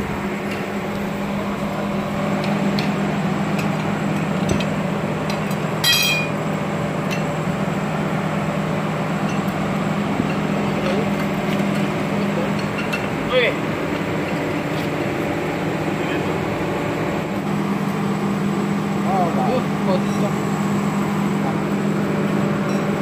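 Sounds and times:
low machine hum: 0.0s - 23.0s
metal parts clanking: 5.8s - 6.4s
sharp ringing metal clink: 5.8s - 6.4s.

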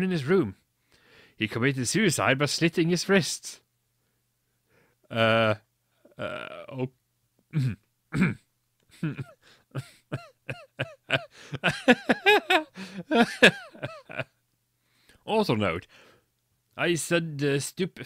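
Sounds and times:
man making vocal sounds: 5.1s - 6.9s, 7.5s - 14.2s.

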